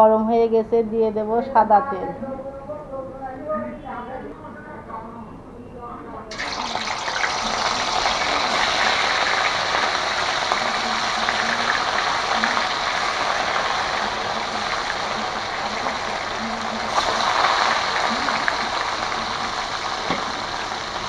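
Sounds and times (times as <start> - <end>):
fish sizzling in hot oil: 6.3 - 21.0.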